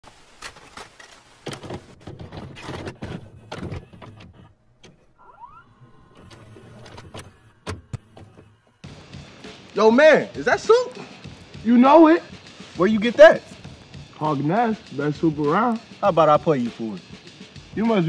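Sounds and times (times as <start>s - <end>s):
tape mechanism clunks and whirring: 0.4s - 9.0s.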